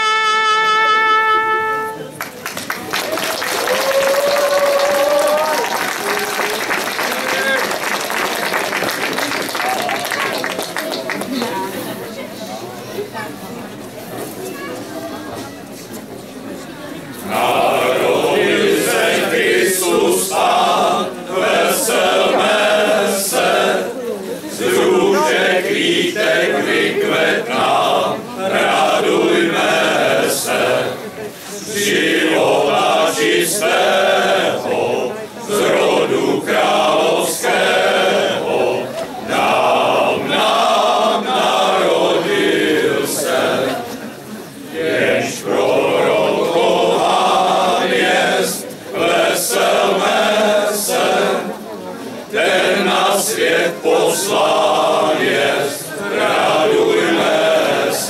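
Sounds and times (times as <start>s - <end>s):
men's choir singing a cappella: 17.2s - 44.0s, 44.6s - 51.7s, 52.3s - 58.0s.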